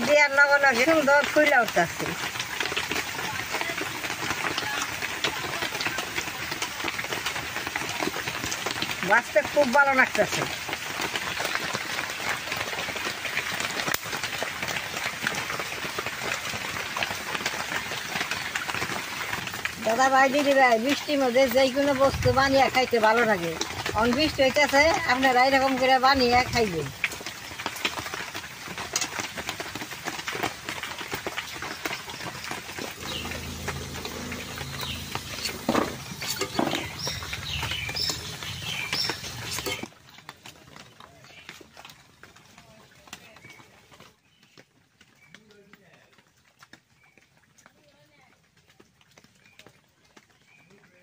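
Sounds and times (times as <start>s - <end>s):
oil crackling and popping: 0.0s - 51.0s
steady rain falling: 0.0s - 51.0s
low steady hum: 32.9s - 38.6s
metal spatula scraping a wok: 33.0s - 37.2s.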